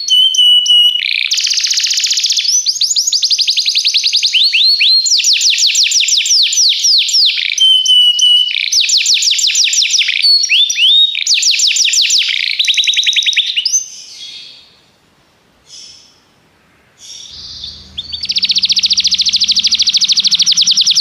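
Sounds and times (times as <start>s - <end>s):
held whistle: 0.0s - 2.7s, 17.3s - 21.0s
canary singing trills: 0.0s - 14.8s, 16.9s - 21.0s.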